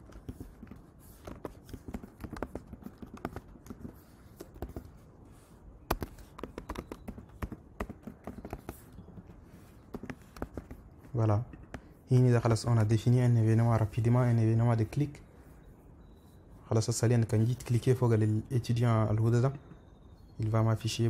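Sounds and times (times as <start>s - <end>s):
computer keyboard key clicks: 5.9s - 8.8s.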